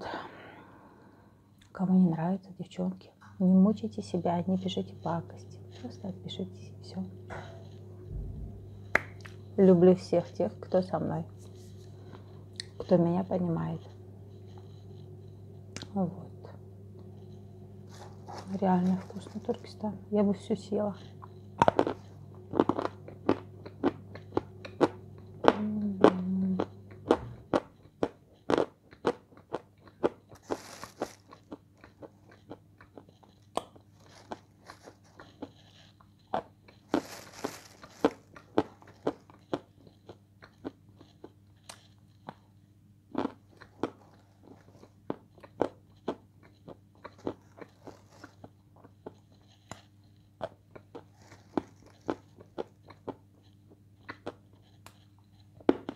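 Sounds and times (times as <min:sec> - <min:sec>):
low hum: 0:03.2 - 0:27.8.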